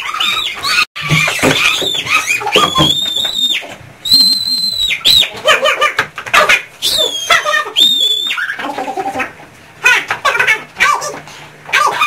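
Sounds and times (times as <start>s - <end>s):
people squealing: 0.0s - 5.4s.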